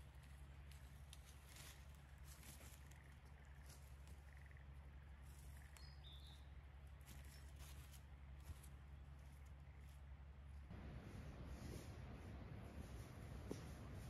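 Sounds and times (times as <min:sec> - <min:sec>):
footsteps in dry leaves: 0:00.0 - 0:04.3, 0:06.9 - 0:10.1
low steady hum: 0:00.0 - 0:14.0.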